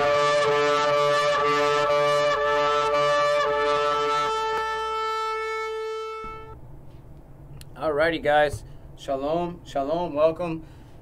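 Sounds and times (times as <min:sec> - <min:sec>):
shofar blasts: 0:00.0 - 0:06.6.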